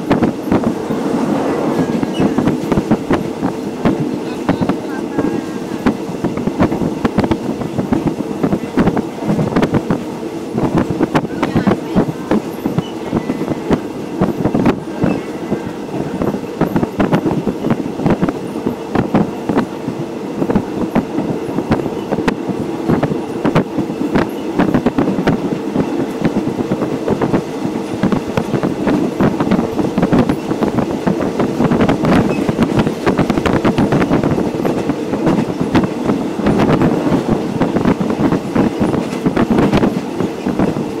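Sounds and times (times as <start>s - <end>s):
train wheels rumbling on rails: 0.0s - 41.0s.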